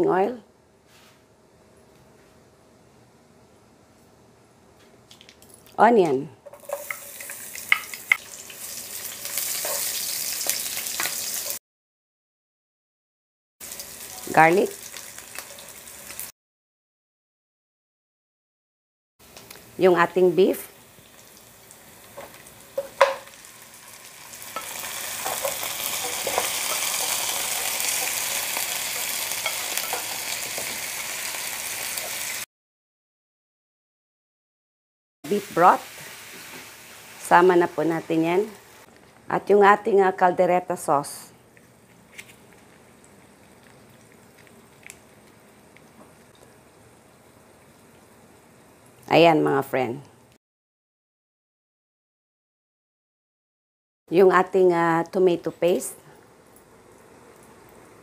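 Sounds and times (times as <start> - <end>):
onion sizzling in oil: 6.4 - 11.6, 13.6 - 16.3, 19.2 - 32.5, 35.3 - 38.9.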